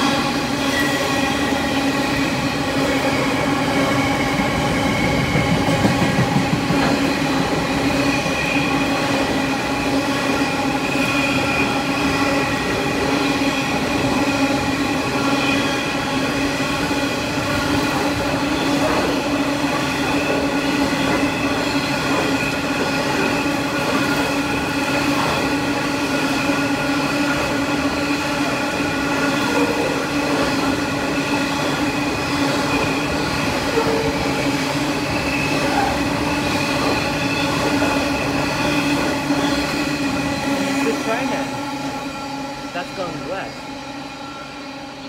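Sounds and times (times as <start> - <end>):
wheel squeal whine: 0.0 - 19.2, 26.1 - 42.8, 43.5 - 45.0
train wheels rumbling on rail: 0.0 - 45.0.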